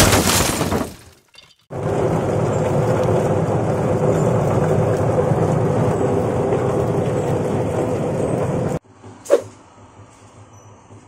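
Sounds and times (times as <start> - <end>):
machine motor humming: 1.7 - 8.8.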